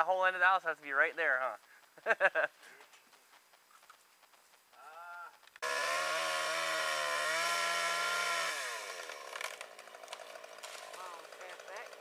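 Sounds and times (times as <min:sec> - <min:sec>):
chainsaw revving: 0:05.6 - 0:12.0.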